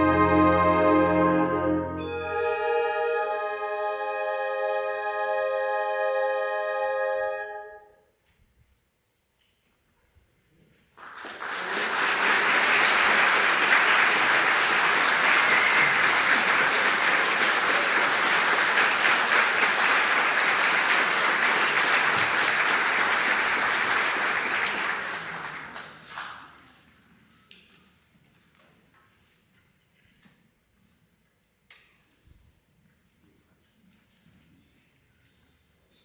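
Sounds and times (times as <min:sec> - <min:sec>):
audience applauding: 0:11.0 - 0:26.9.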